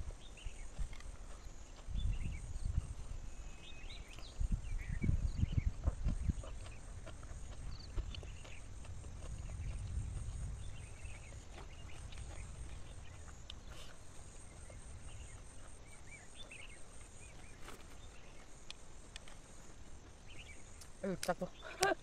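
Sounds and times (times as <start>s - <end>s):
low rumble: 4.4s - 16.2s.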